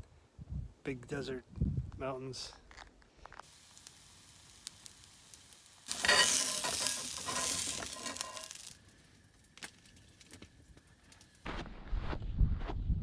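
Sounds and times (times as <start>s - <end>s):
egg sizzling in a skillet: 3.4s - 10.5s.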